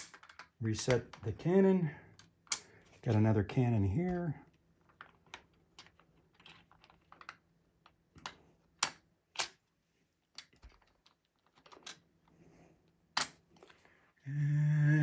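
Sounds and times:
marble-run pieces clicking: 0.0 - 1.3, 4.1 - 9.6, 10.2 - 12.2, 12.8 - 13.9.

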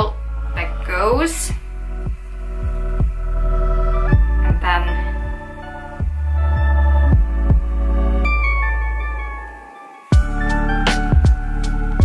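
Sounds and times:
synth chords: 0.0 - 12.0
kick drum hits: 1.1 - 2.3, 3.0 - 3.2, 4.1 - 5.4, 6.0 - 6.3, 7.1 - 7.8, 10.2 - 11.5.

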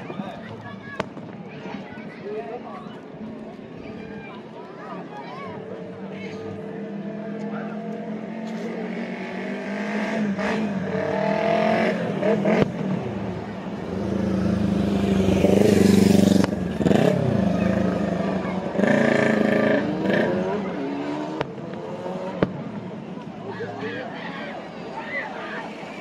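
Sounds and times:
motorcycle passing: 5.7 - 23.8
car passing by: 6.4 - 22.8.

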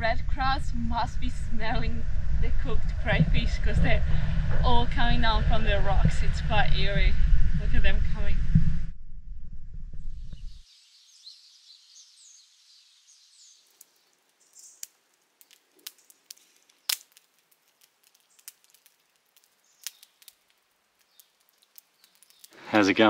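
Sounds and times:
wood fire crackling and popping: 13.4 - 23.0.

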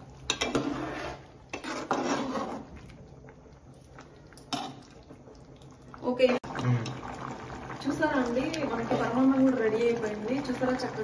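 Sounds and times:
ladle scraping and clinking pot: 0.2 - 2.9.

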